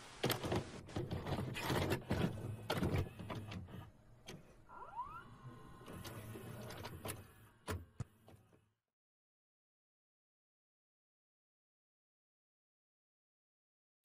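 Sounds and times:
videocassette player clicking and whirring: 0.2 - 8.5.

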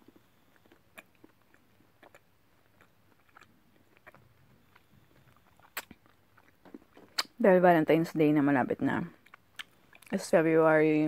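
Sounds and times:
person chewing: 0.0 - 7.4, 9.2 - 10.1
soft mouth clicks: 5.5 - 7.4.

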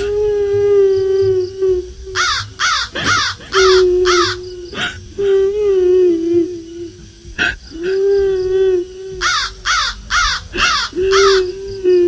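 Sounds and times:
long wailing cry: 0.0 - 7.0, 7.7 - 12.0
crow cawing: 2.2 - 4.4, 9.2 - 11.5.

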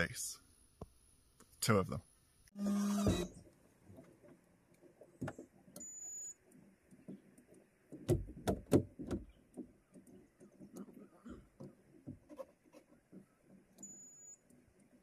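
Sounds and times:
clicks and knocks on outboard motor: 3.2 - 15.0.

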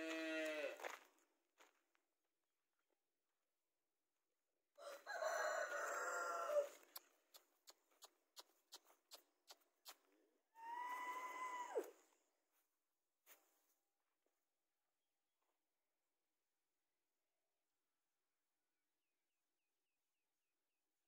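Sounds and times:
rooster crowing: 4.8 - 6.8.

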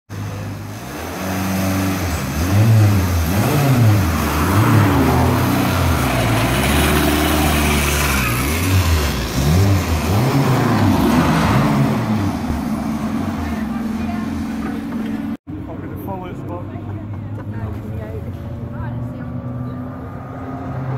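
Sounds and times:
racing car engine revving: 0.2 - 15.4.

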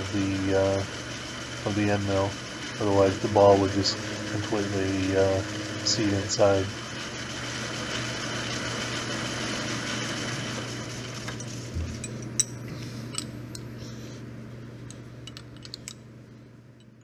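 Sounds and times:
metal lathe humming: 0.0 - 14.1.

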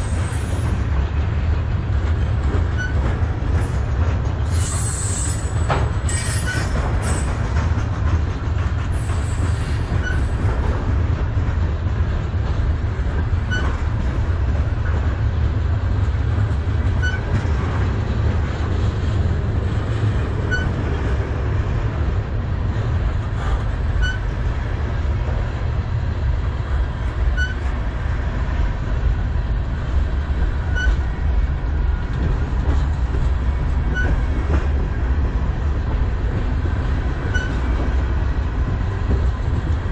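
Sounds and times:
freight train wheels rumbling: 0.0 - 39.9
high wheel squeals: 3.6 - 7.3, 9.0 - 10.4, 13.5 - 13.8, 20.5 - 20.8, 24.0 - 24.3, 37.2 - 37.6.

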